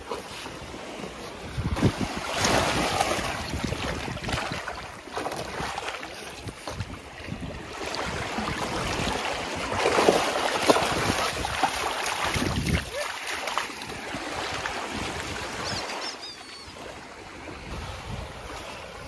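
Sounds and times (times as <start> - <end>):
small waves lapping: 0.0 - 19.0
wind buffeting microphone: 0.6 - 13.0, 17.2 - 19.0
dog splashing through water: 7.7 - 15.4.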